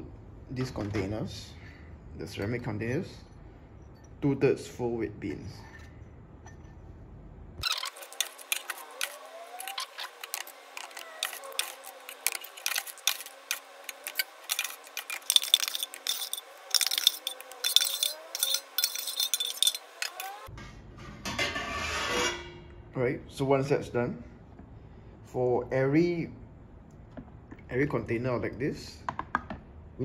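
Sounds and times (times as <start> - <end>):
dry beans rattling into ceramic cups: 7.6 - 20.5
metal spoon scraping a tray: 7.6 - 20.5.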